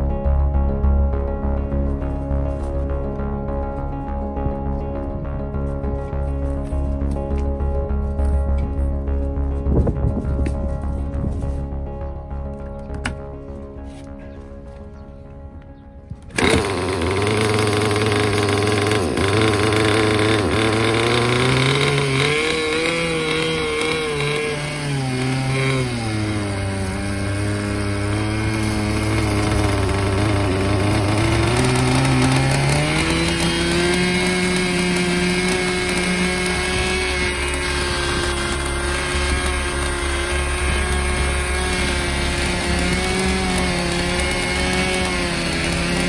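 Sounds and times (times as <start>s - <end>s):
small nitro engine revving: 16.3s - 46.0s.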